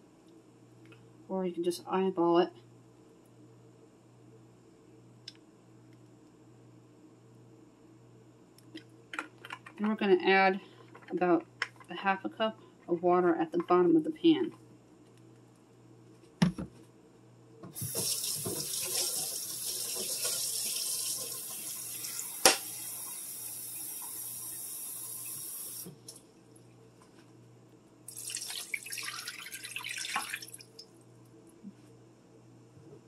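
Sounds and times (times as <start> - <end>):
kitchen tap running: 17.7 - 26.2, 28.1 - 30.8.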